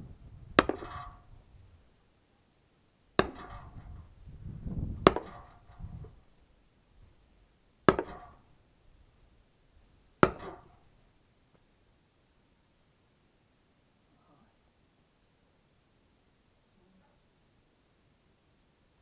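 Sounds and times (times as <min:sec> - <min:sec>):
axe chopping kindling on wood block: 0:00.6 - 0:01.1, 0:03.2 - 0:03.8, 0:05.0 - 0:05.6, 0:07.9 - 0:08.4, 0:10.2 - 0:10.8.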